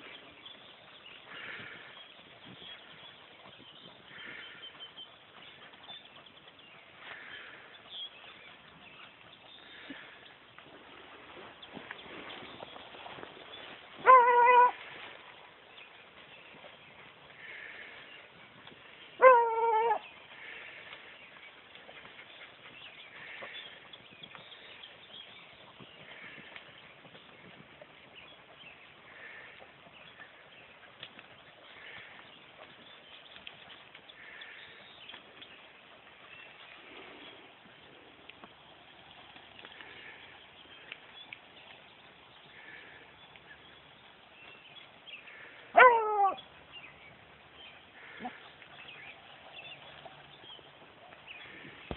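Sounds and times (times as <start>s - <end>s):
rustling in brush: 0.0s - 19.2s
dog baying: 45.7s - 46.4s.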